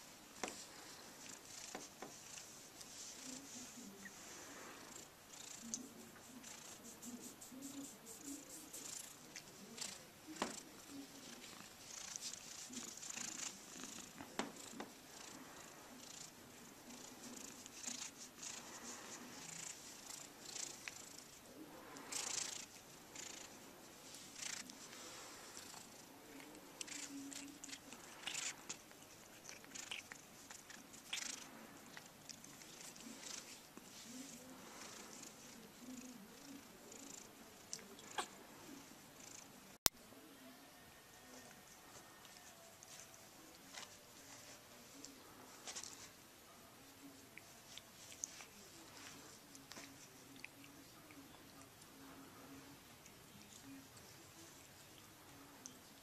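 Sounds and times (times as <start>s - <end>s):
cat purring: 0.0s - 39.8s.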